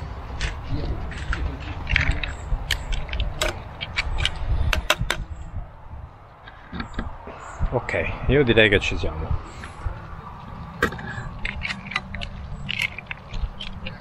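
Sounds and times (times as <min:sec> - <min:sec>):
mussel shells clattering: 0:10.6 - 0:14.0.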